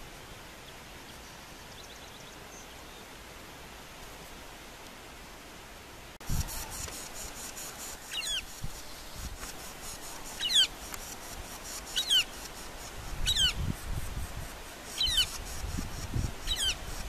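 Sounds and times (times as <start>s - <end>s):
bird calling: 6.3s - 13.6s, 14.9s - 15.6s, 16.4s - 17.0s.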